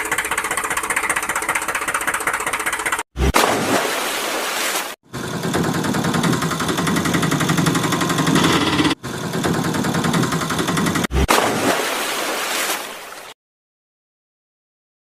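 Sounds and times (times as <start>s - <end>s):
fast mechanical rattle: 0.0s - 3.0s, 5.1s - 11.1s.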